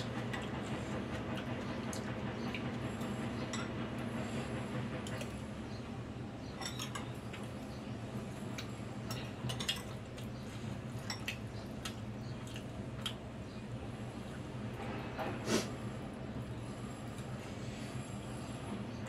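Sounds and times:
cutlery clinking on ceramic bowl: 0:06.6 - 0:07.1.

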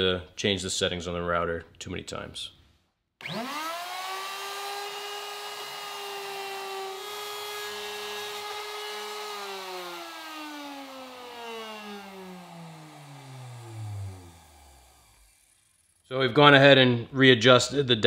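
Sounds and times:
router motor whine: 0:03.2 - 0:16.1.

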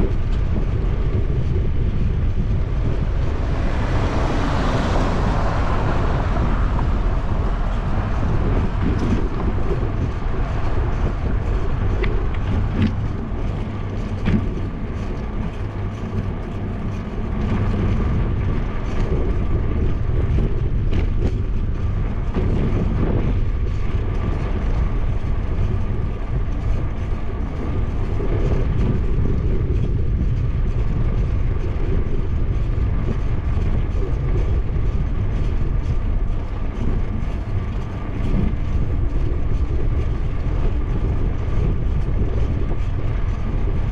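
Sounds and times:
passing car: 0:00.0 - 0:29.9
wind and road rumble: 0:00.0 - 0:43.9.

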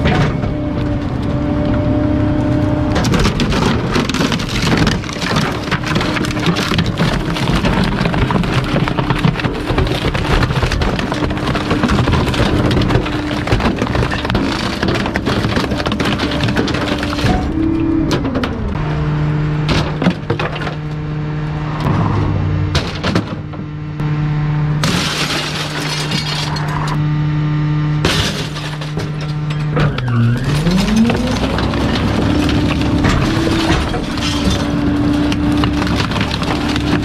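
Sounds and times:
truck engine humming: 0:00.0 - 0:37.0
wood cracking: 0:02.4 - 0:18.8, 0:24.8 - 0:27.0, 0:28.0 - 0:37.0
glass shattering: 0:24.8 - 0:27.0, 0:28.0 - 0:35.0.

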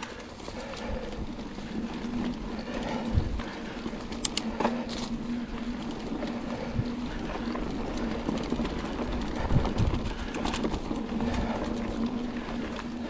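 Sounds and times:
bike tyres on dirt trail: 0:00.0 - 0:13.0
bike knocks and clicks: 0:04.1 - 0:05.1.

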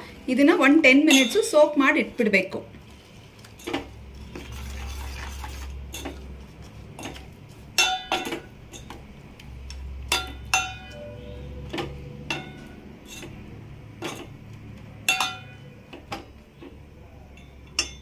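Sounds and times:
ladle clinking against metal pot: 0:01.1 - 0:01.6, 0:07.0 - 0:09.0, 0:10.0 - 0:13.4, 0:14.0 - 0:14.4, 0:15.0 - 0:18.0
water pouring into a pot: 0:04.4 - 0:05.8.

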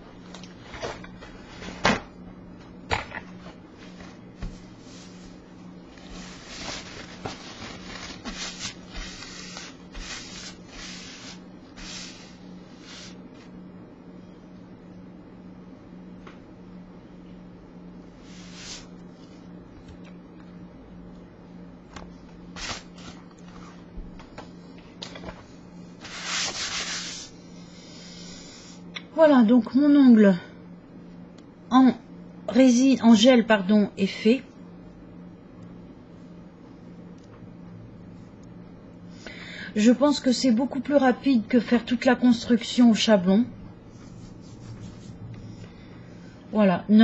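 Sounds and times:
steady low hum: 0:00.0 - 0:47.0
paper towel rubbing on mat: 0:03.8 - 0:05.4, 0:06.0 - 0:13.5, 0:18.2 - 0:19.0, 0:26.0 - 0:27.4, 0:43.9 - 0:45.3.

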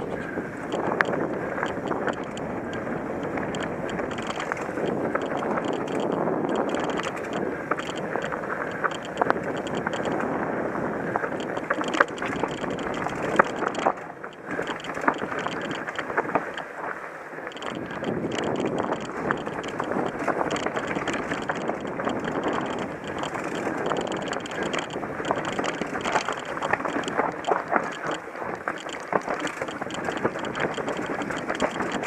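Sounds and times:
bike clicks and rattles: 0:00.0 - 0:32.0
bike tyre noise on dirt: 0:00.0 - 0:32.0
rushing wind: 0:00.0 - 0:32.0.

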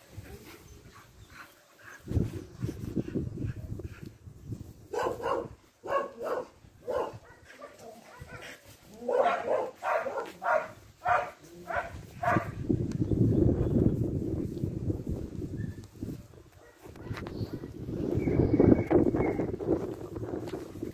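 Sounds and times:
dog barking: 0:04.9 - 0:12.6, 0:16.6 - 0:17.8.

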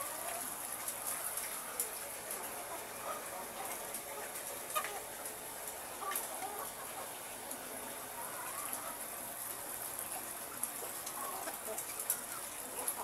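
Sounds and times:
hens clucking: 0:00.0 - 0:13.0.

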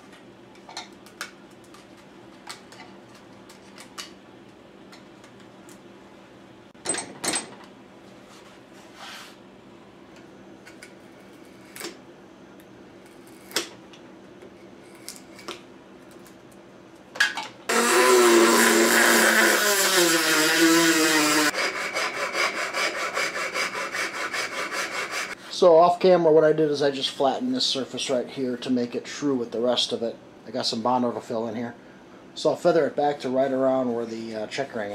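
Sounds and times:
power tool cutting: 0:17.7 - 0:25.4
rasping on wood: 0:17.7 - 0:25.4.

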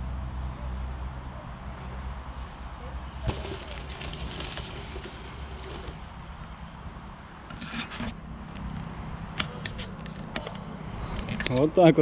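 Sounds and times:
tyres crunching on dirt: 0:01.8 - 0:07.1.

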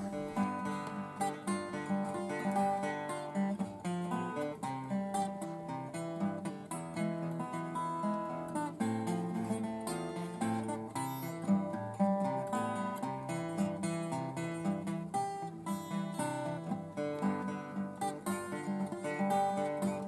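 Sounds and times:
acoustic guitar playing: 0:00.0 - 0:20.0.

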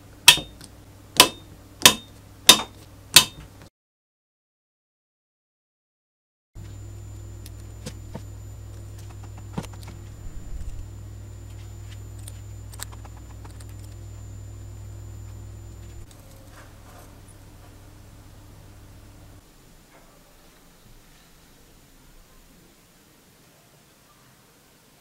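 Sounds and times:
steady low hum: 0:00.0 - 0:03.7, 0:06.6 - 0:23.4
faint high whine: 0:06.6 - 0:25.0.

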